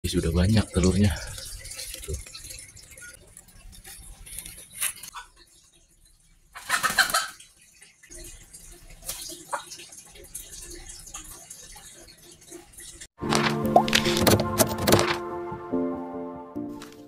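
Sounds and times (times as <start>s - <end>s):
chicken clucking: 6.6s - 7.4s.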